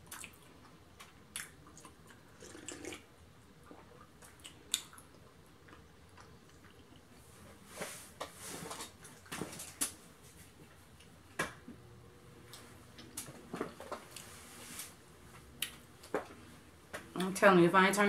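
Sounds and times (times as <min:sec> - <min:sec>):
electric fan hum: 0:00.0 - 0:18.0
person moving about rustling: 0:07.2 - 0:11.0, 0:12.4 - 0:17.1.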